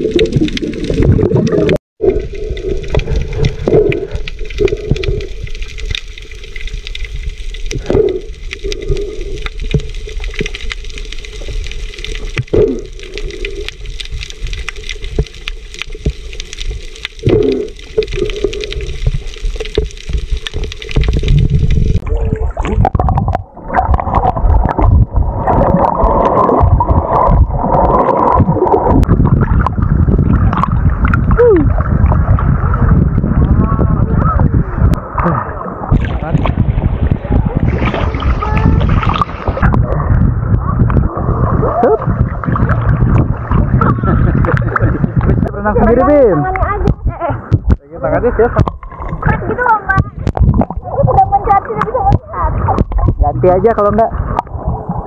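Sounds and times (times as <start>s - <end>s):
muffled underwater gurgling: 0.0s - 55.0s
water sloshing and splashing: 0.0s - 55.0s
underwater knocks: 35.9s - 41.4s, 42.0s - 54.5s.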